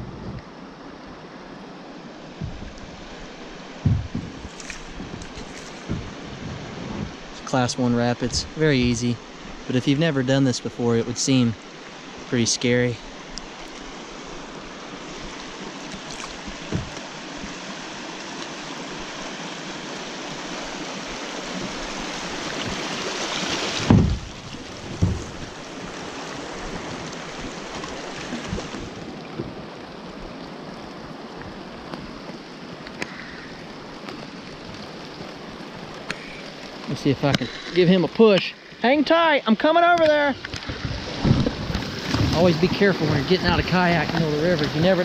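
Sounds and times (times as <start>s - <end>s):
river rapids rushing: 0.7s - 45.0s
dull knocks on kayak hull: 2.4s - 2.8s, 3.8s - 7.2s, 16.4s - 17.1s, 23.7s - 25.5s, 40.5s - 42.4s.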